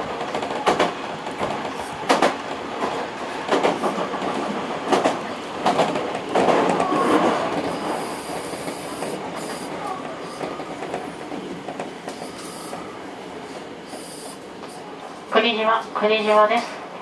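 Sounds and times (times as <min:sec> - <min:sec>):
train running: 0:00.0 - 0:17.0
wheels clicking over rail joints: 0:00.1 - 0:12.8.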